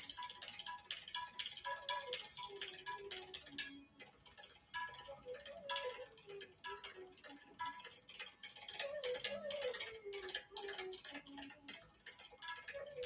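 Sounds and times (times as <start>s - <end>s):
soft slow melody: 0.0s - 13.0s.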